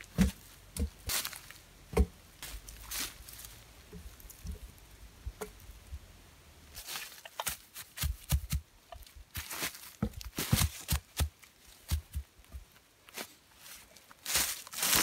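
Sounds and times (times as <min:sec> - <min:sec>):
logs knocking together: 0:00.0 - 0:01.2, 0:01.9 - 0:02.2
footsteps in dry leaves: 0:00.0 - 0:01.7, 0:02.4 - 0:04.4, 0:06.8 - 0:15.0.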